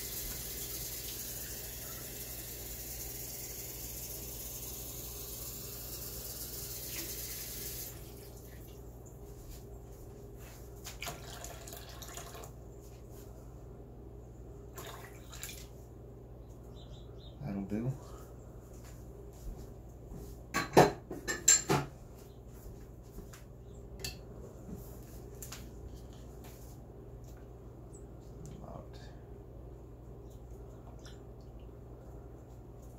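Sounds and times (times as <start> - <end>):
ultrasonic cleaner running: 0.0 - 9.6.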